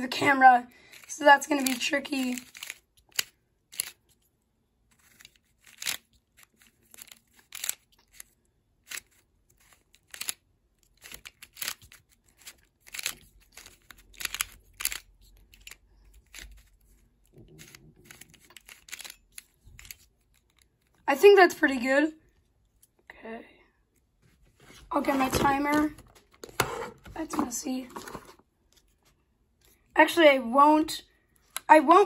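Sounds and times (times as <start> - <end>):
plastic puzzle clicking and clacking: 0.2 - 4.2, 4.9 - 21.0.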